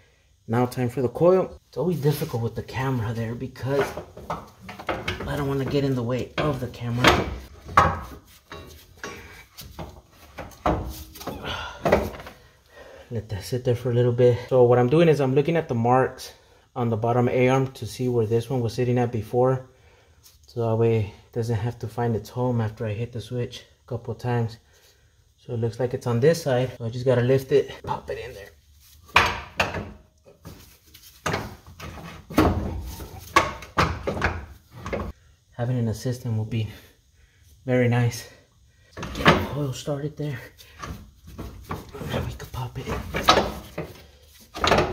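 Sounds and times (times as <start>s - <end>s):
metal knocks and scrapes: 3.6s - 11.2s.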